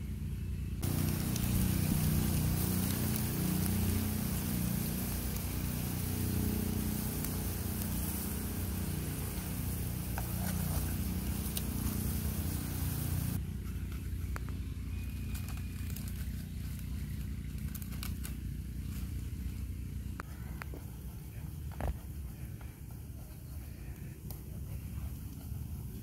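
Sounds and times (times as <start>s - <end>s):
low rumble of fire: 0.4s - 13.5s
sauce bubbling and sizzling: 0.8s - 13.4s
sharp clicks and crackles: 0.8s - 13.4s, 14.3s - 19.1s.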